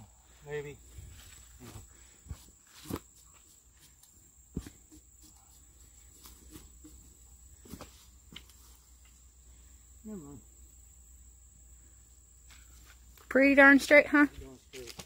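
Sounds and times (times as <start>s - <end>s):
footsteps on sawdust and leaves: 14.4s - 15.0s.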